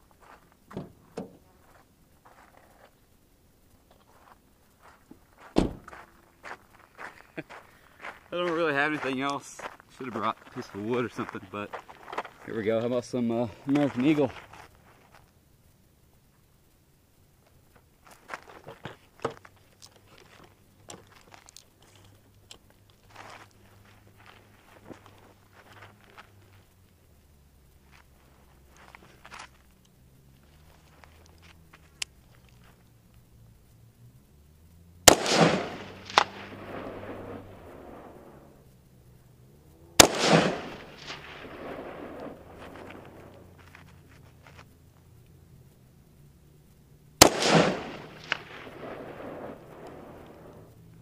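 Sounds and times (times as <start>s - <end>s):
rifle handling on gravel: 0.0s - 3.1s, 3.8s - 15.4s, 17.4s - 27.0s, 27.6s - 33.4s, 35.1s - 38.7s, 40.0s - 45.7s, 47.2s - 50.7s
small ticks: 13.6s - 35.0s, 42.2s - 47.2s
rifle shots echoing: 35.0s - 38.3s, 40.0s - 43.3s, 47.2s - 50.6s.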